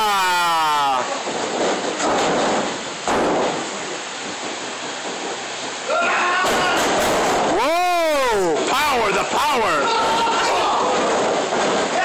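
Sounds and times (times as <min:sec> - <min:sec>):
spectator shouting: 0:00.0 - 0:01.1, 0:07.5 - 0:11.0
loud bang: 0:00.0 - 0:12.0.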